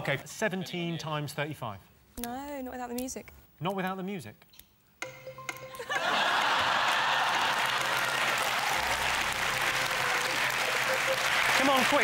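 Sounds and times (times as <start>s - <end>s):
audience applauding: 5.8s - 12.0s
audience laughing: 5.8s - 12.0s.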